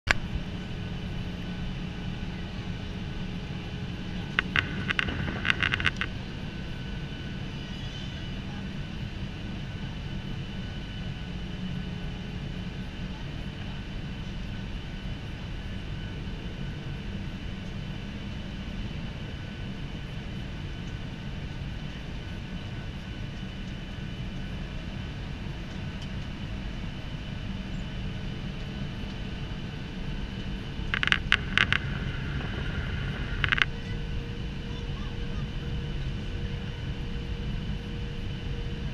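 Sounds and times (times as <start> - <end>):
jet engine cabin drone: 0.1 - 38.9
faint high whine: 2.2 - 8.9, 27.5 - 38.9
clicks: 4.4 - 6.1, 31.0 - 33.7.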